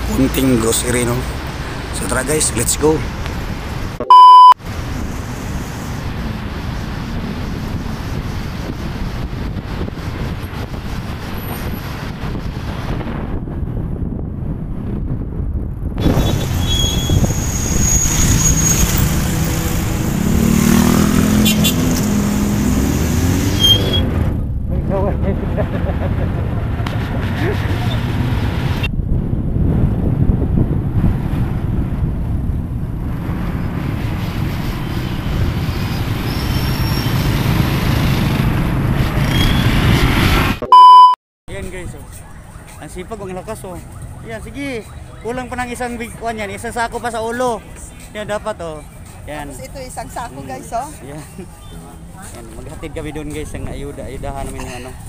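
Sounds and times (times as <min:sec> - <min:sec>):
traffic: 0:00.0 - 0:55.0
wind buffeting microphone: 0:04.9 - 0:22.9, 0:24.0 - 0:36.2.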